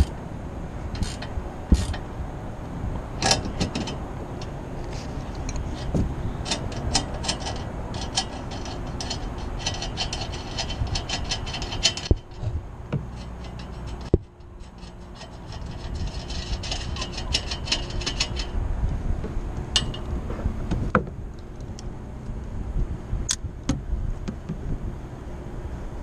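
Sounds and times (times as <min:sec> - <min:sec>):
wind rumble on microphone: 0:00.0 - 0:26.0
metallic clicking and rattling of tools: 0:01.0 - 0:02.0, 0:03.2 - 0:18.6, 0:19.7 - 0:20.1.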